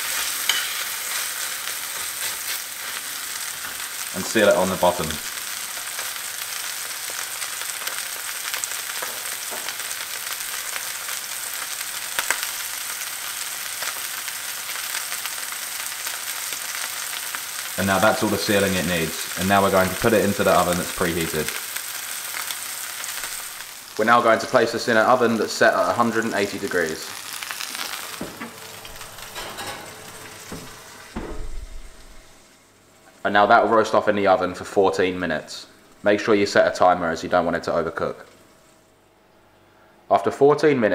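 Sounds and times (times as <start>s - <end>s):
meat sizzling in a frying pan: 0.0s - 31.3s
oven door thump: 28.1s - 32.4s.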